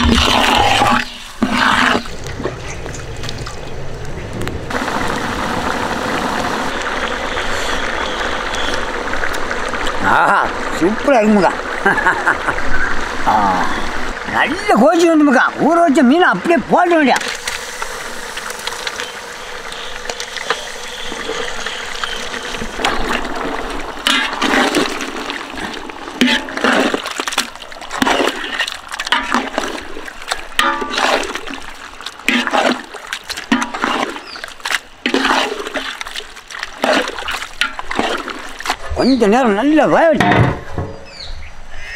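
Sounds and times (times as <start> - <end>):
steady watery rush: 0.0 - 41.9
fish splashing into boiling liquid: 4.6 - 15.0, 17.0 - 38.9.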